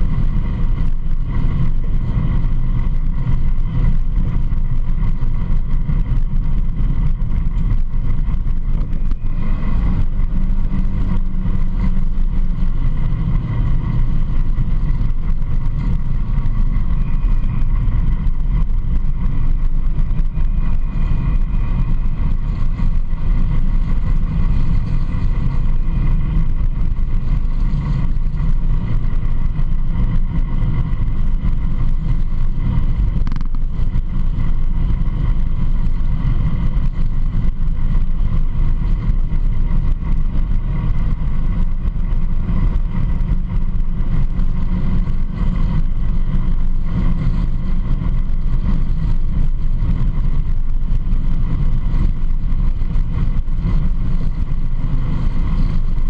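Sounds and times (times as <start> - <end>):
off-road vehicle driving on gravel: 0.0 - 56.0.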